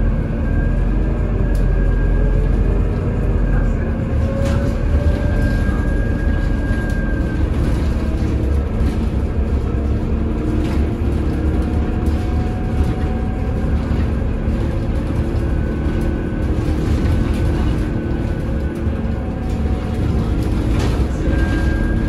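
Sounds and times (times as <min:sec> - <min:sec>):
bus engine running: 0:00.0 - 0:22.0
road noise: 0:00.0 - 0:22.0.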